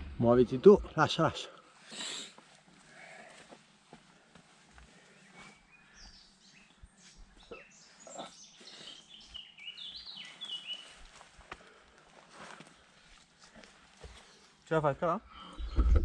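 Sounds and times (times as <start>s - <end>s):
songbird singing: 3.7s - 11.8s.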